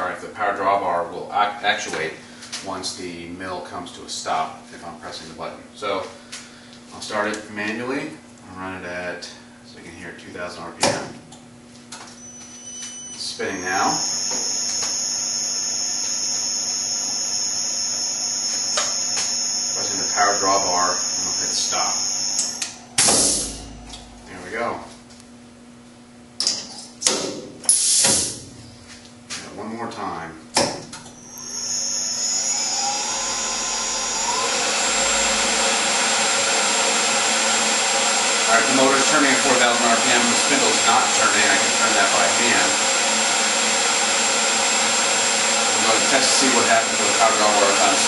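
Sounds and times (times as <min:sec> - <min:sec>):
mill spindle whine: 0:12.0 - 0:26.5, 0:31.0 - 0:48.0.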